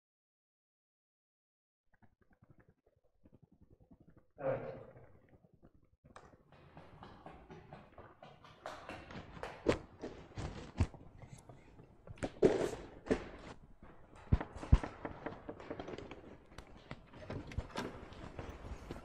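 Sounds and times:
footsteps: 0:06.2 - 0:19.0.

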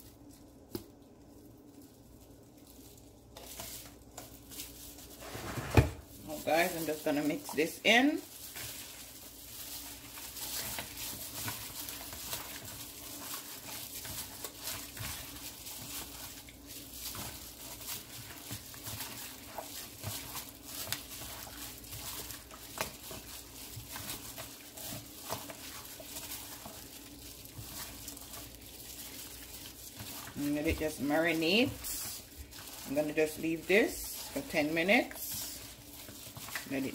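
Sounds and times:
squishing of meat in marinade: 0:00.0 - 0:36.9.

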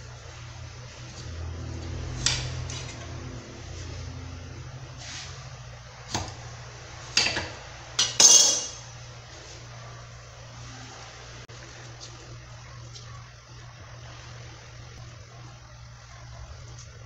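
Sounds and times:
short metallic ring: 0:08.2 - 0:08.9.

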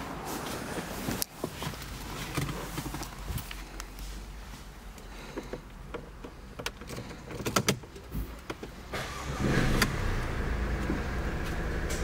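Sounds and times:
car engine starting and idling: 0:04.9 - 0:12.0.

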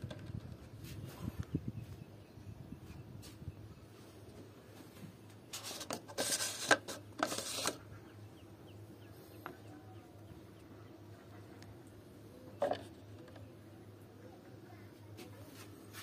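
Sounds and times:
faint steady hum: 0:00.0 - 0:16.0
plastic lid scraping on plastic: 0:05.5 - 0:07.9.

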